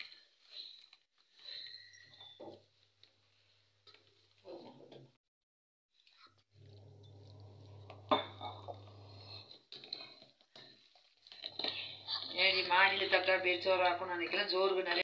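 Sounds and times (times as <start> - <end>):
metal clink of cookware: 8.0 - 8.8.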